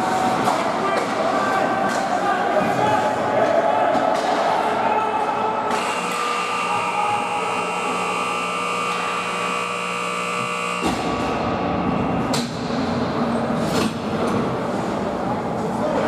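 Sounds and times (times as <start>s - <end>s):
rink horn buzzing: 5.8s - 11.0s.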